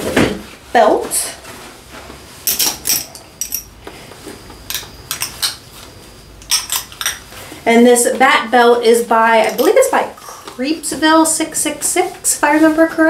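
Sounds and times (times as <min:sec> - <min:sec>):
metal belt buckle clinking: 0:02.5 - 0:03.7, 0:09.4 - 0:09.8.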